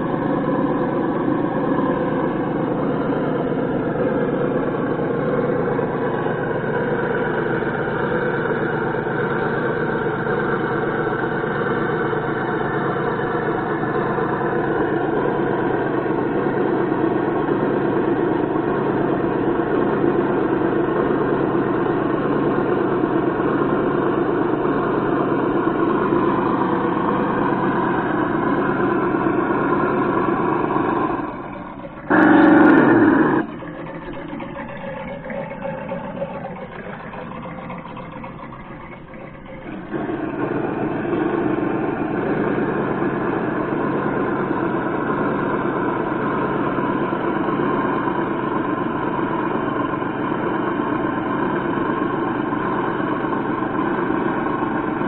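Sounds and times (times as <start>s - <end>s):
simulated engine sound: 0.0s - 55.0s.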